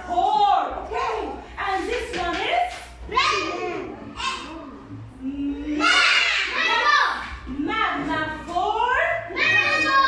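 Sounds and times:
children's voices: 0:03.1 - 0:07.4, 0:09.2 - 0:10.0.

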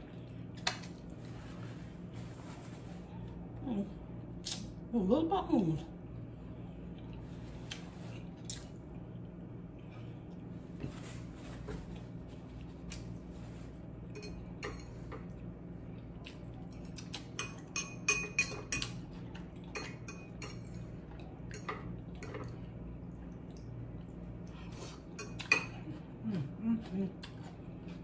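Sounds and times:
fork clinking against glass bowl: 0:14.1 - 0:15.0, 0:17.4 - 0:19.0, 0:19.7 - 0:20.8.

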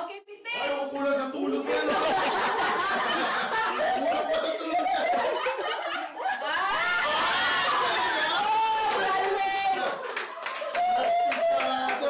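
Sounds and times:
people chatting: 0:00.0 - 0:06.0
group of people laughing: 0:01.6 - 0:12.0.

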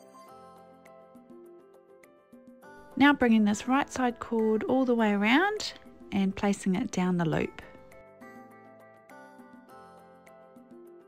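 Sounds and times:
light background music: 0:00.0 - 0:11.0.

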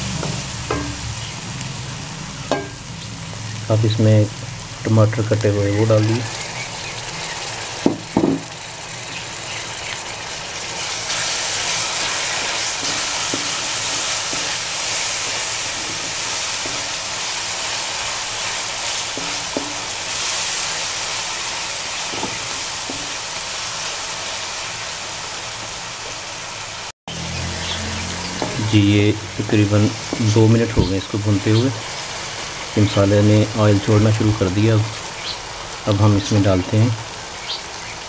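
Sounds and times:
tomatoes sizzling in oil: 0:00.0 - 0:38.0
sharp knocks: 0:07.8 - 0:08.5
wooden spoon stirring: 0:10.8 - 0:21.2.

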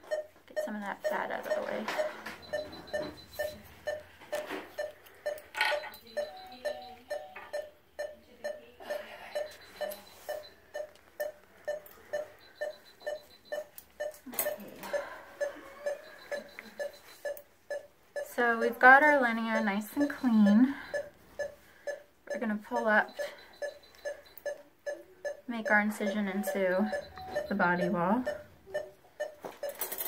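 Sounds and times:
monitor beeping: 0:00.0 - 0:30.0
surgical instruments clicking: 0:09.4 - 0:22.0, 0:28.3 - 0:30.0.

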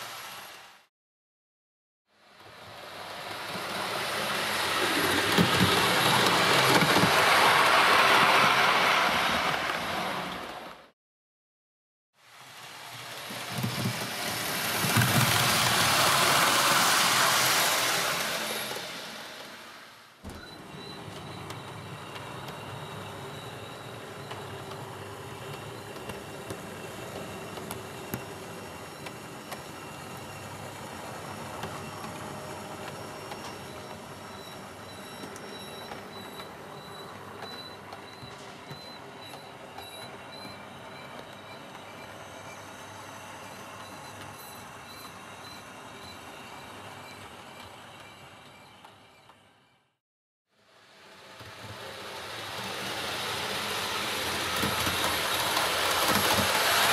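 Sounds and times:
wheels clicking over rail joints: 0:04.7 - 0:10.6
model train whirring rattle: 0:51.2 - 0:56.9.

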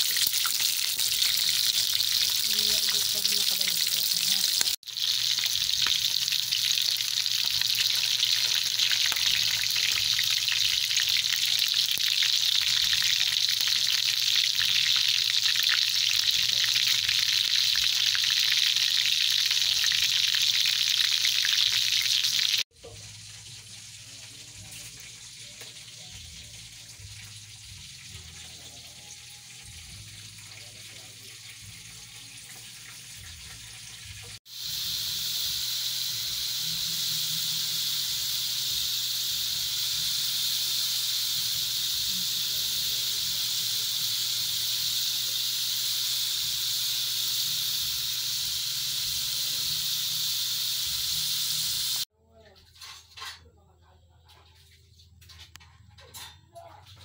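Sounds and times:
chicken frying in hot oil: 0:00.0 - 0:52.1.

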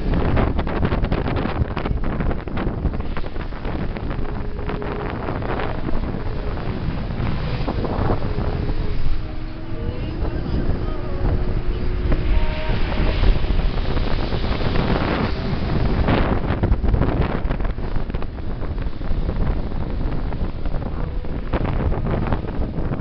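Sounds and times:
vehicle road and engine noise: 0:00.0 - 0:23.0
wind buffeting microphone: 0:00.0 - 0:23.0.

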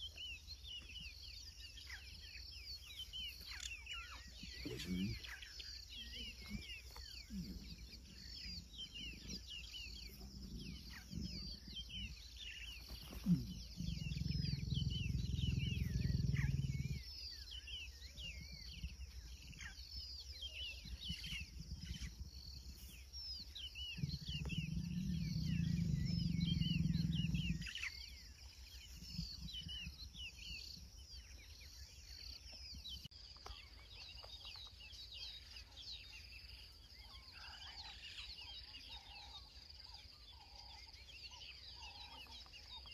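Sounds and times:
birds chirping: 0:00.0 - 0:42.9
lions growling: 0:02.8 - 0:31.7.

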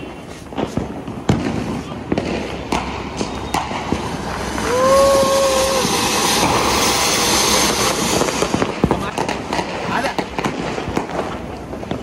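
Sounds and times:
firework fountain hissing: 0:00.0 - 0:12.0.

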